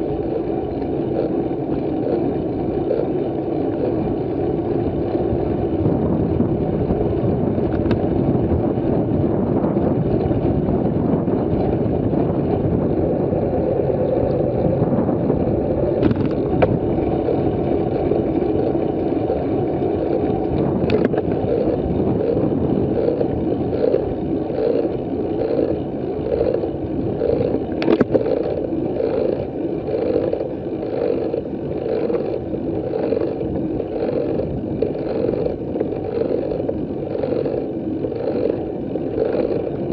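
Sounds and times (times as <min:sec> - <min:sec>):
wind and road noise: 0:00.0 - 0:39.9
bike clicks and knocks: 0:00.2 - 0:05.2, 0:07.6 - 0:08.8, 0:15.8 - 0:39.9
regular pulsing: 0:11.8 - 0:39.9.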